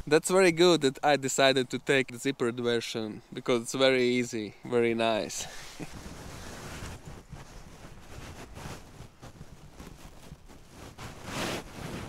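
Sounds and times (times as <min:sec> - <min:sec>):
fabric rustling: 0:05.5 - 0:12.0.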